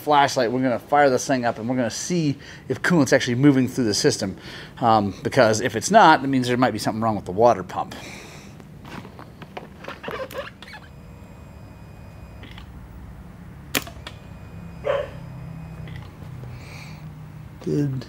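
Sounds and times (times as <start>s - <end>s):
faint low hum: 0.4s - 18.0s
faint high whine: 9.1s - 18.0s
sharp click: 13.7s - 14.2s.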